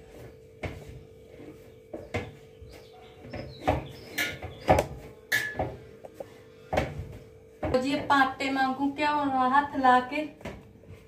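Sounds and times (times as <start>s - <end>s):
dough kneading thumps: 0.0s - 8.4s.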